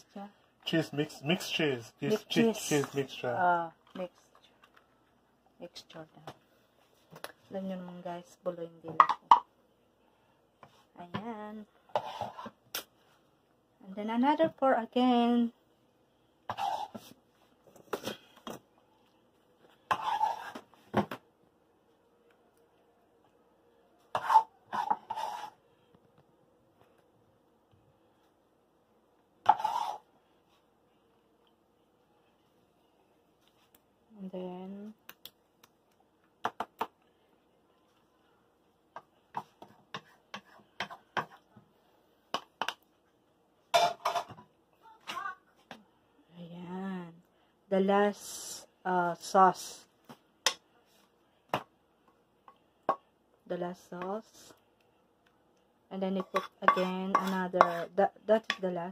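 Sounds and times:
metal spoon scraping a skillet: 0:11.9 - 0:12.6, 0:16.5 - 0:17.1, 0:19.8 - 0:20.7, 0:24.1 - 0:25.6, 0:29.4 - 0:30.1, 0:56.1 - 0:58.7.

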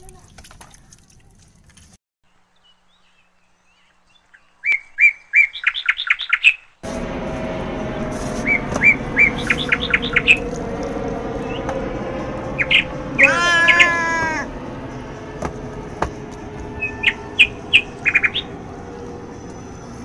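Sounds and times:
bird chirping: 0:02.3 - 0:06.8, 0:08.4 - 0:10.6, 0:12.5 - 0:14.2, 0:16.7 - 0:20.0.

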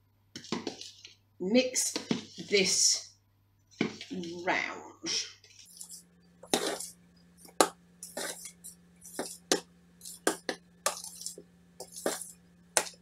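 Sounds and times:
metal spoon stirring in bowl: 0:05.5 - 0:13.0.

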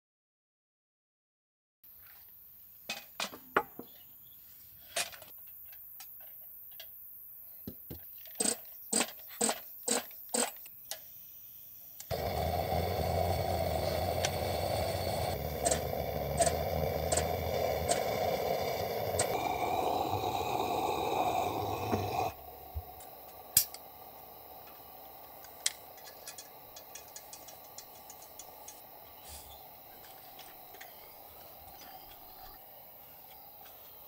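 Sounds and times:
small hard objects clicking: 0:25.4 - 0:28.9.

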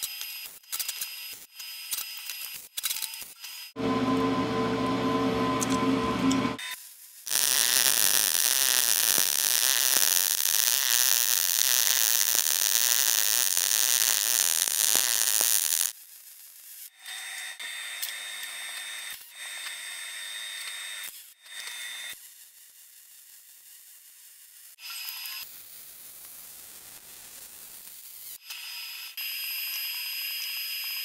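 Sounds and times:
welding arc crackling hiss: 0:07.0 - 0:16.9, 0:22.6 - 0:28.4.

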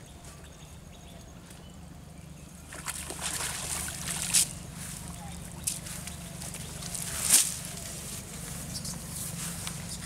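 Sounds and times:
sharp loud splash: 0:02.7 - 0:04.5
water streaming off a net: 0:02.7 - 0:04.5.

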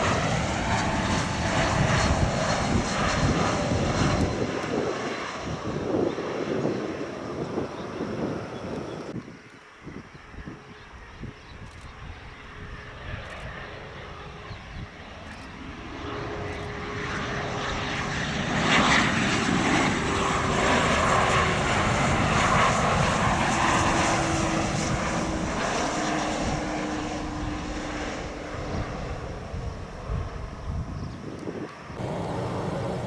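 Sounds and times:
jet passing close by: 0:00.0 - 0:09.2, 0:09.8 - 0:33.0
jet engine whine: 0:00.0 - 0:33.0.

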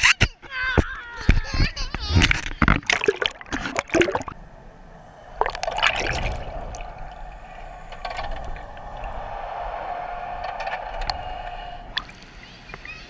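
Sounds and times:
underwater gurgling and bubbling: 0:02.1 - 0:12.2
steady hum: 0:02.1 - 0:12.7
water splash: 0:02.6 - 0:04.4, 0:05.3 - 0:09.4.

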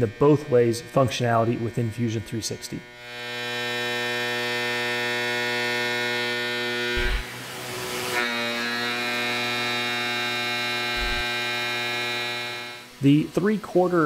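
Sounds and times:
mill cutting metal tone: 0:00.0 - 0:14.0
short thump: 0:07.0 - 0:07.3, 0:11.0 - 0:11.3.

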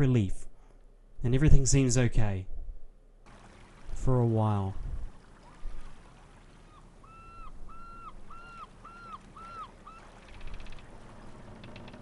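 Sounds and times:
short rising falling animal calls: 0:06.6 - 0:10.9.

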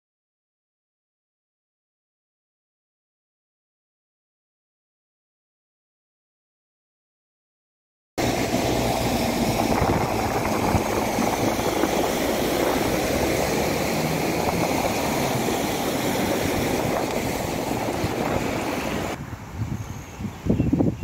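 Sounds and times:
tyres washing through floodwater: 0:08.2 - 0:19.2
vehicle engines: 0:08.2 - 0:20.2.

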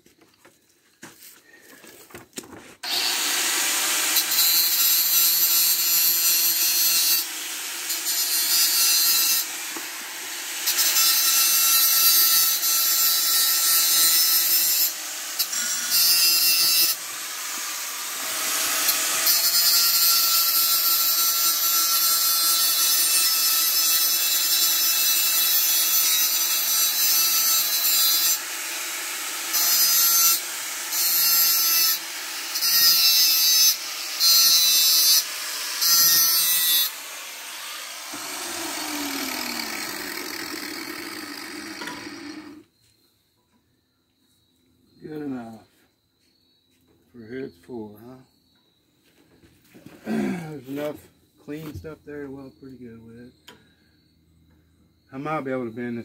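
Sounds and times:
angle grinder grinding metal pipe: 0:02.8 - 0:42.6.

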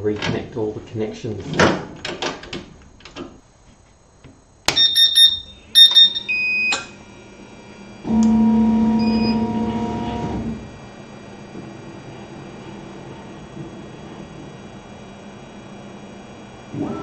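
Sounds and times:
steady motor hum: 0:00.0 - 0:17.0
short electronic beeps: 0:04.7 - 0:06.8, 0:08.9 - 0:09.5.

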